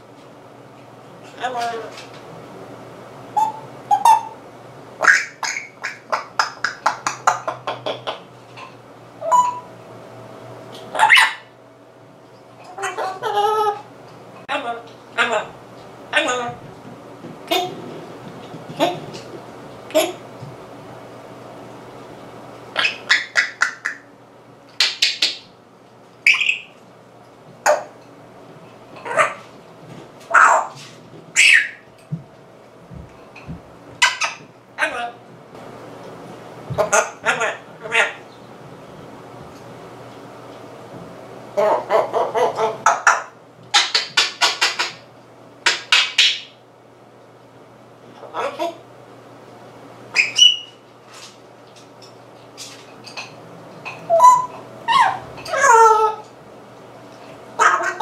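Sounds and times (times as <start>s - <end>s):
parrot squeaky calls: 3.4s - 4.4s, 5.0s - 7.6s, 9.2s - 9.7s, 10.9s - 11.5s, 12.7s - 13.8s, 22.8s - 24.0s, 26.3s - 26.8s, 29.0s - 29.4s, 30.3s - 30.8s, 31.4s - 31.9s, 34.0s - 35.1s, 50.1s - 50.8s, 53.9s - 56.2s
parrot whistle: 3.4s - 4.4s, 9.2s - 9.7s, 26.3s - 26.7s, 31.4s - 31.8s, 50.1s - 50.8s, 54.0s - 56.2s
parrot clicking: 43.7s - 45.0s.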